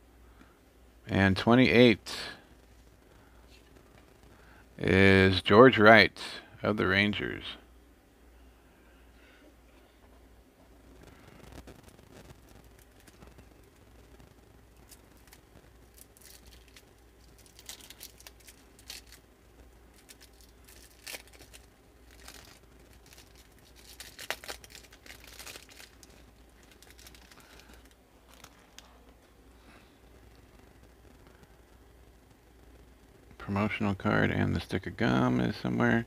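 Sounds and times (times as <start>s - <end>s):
cellophane wrapper crinkling: 11.0s - 29.3s.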